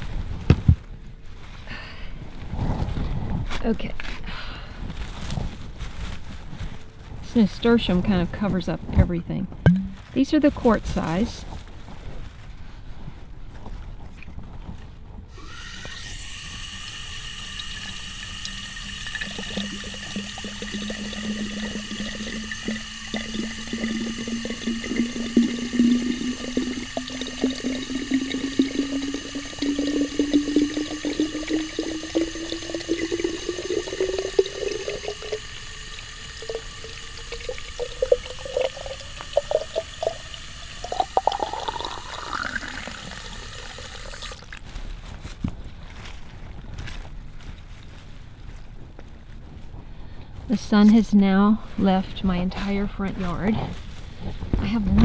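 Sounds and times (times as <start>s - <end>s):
water pouring from hose into pot: 10.2s - 11.4s, 15.3s - 44.7s
water splashing: 15.5s - 44.7s.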